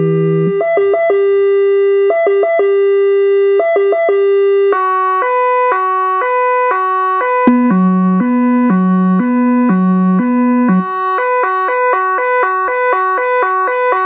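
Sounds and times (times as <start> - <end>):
two-tone siren: 0.0 - 14.0
electronic siren: 3.8 - 14.0
deep low-frequency siren: 5.0 - 14.0.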